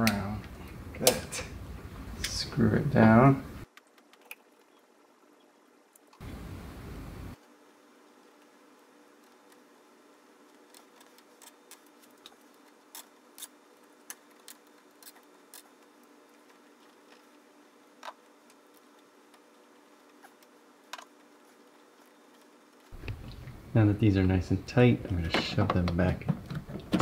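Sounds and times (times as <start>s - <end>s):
faint steady hum: 0.0s - 27.0s
copper wires being twisted: 10.4s - 17.4s.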